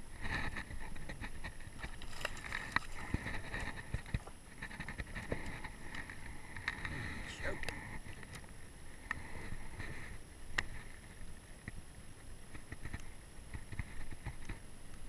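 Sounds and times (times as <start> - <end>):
clicks and knocks of fishing rod: 0.2 - 6.9.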